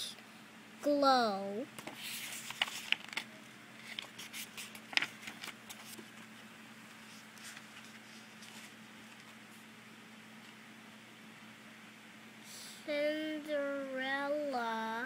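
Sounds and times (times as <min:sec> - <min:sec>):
faint steady hum: 0:00.0 - 0:15.0
book pages rustling: 0:01.8 - 0:09.7.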